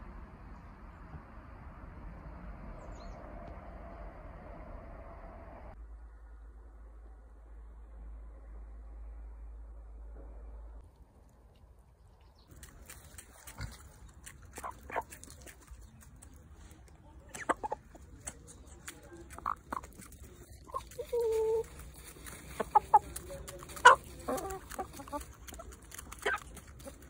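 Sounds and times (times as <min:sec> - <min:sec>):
hens clucking: 0:12.5 - 0:27.0.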